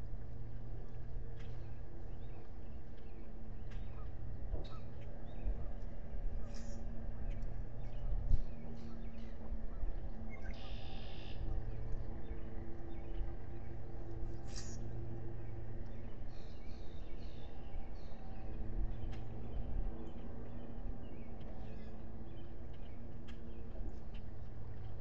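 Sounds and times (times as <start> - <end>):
low rumble with faint hum: 0.0 - 25.0.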